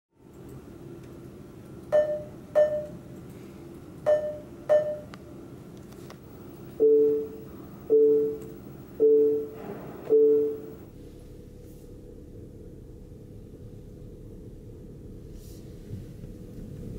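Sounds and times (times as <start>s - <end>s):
two-tone car alert chimes: 1.9s - 3.0s, 4.1s - 5.1s, 6.8s - 10.9s
low hum: 6.2s - 16.9s
short bright pings: 9.0s - 10.8s.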